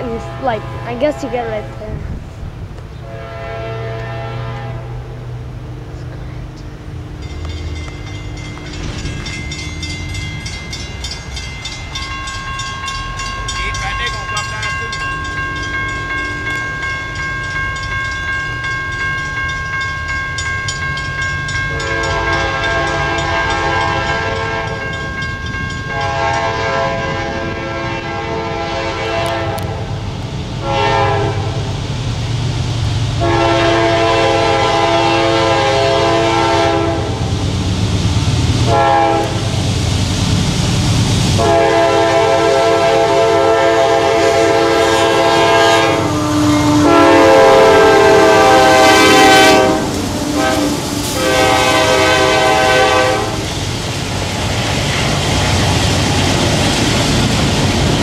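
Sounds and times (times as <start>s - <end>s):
diesel locomotive horn: 0.0s - 1.8s, 3.0s - 7.6s, 21.7s - 25.2s, 25.8s - 30.0s, 30.6s - 31.8s, 33.2s - 37.4s, 38.6s - 39.6s, 41.4s - 53.5s
locomotive low rumble: 0.0s - 42.0s
crossing signal ringing: 6.6s - 28.2s.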